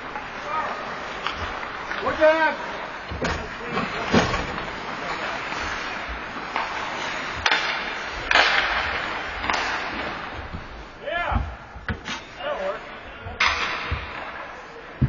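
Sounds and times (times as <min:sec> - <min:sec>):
hockey sticks clacking: 0:00.0 - 0:12.4, 0:13.4 - 0:14.8
skate blades scraping ice: 0:03.6 - 0:10.8.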